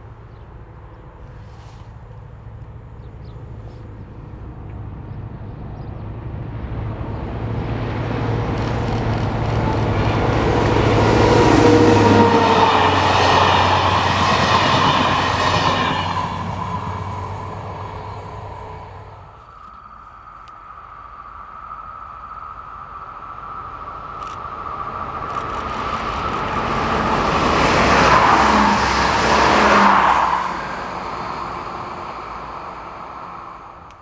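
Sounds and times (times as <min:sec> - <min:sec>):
diesel locomotive engine hum: 0:00.0 - 0:34.0
coach wheels clattering: 0:08.4 - 0:19.4.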